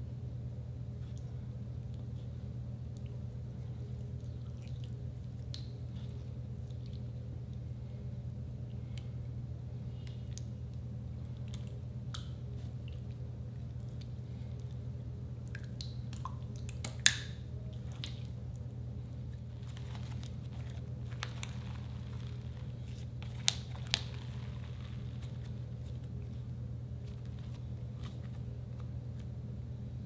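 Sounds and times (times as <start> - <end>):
steady low hum: 0.0 - 30.0
sticky slime squishes: 1.0 - 7.7, 9.9 - 29.4
slime popping: 19.4 - 26.3.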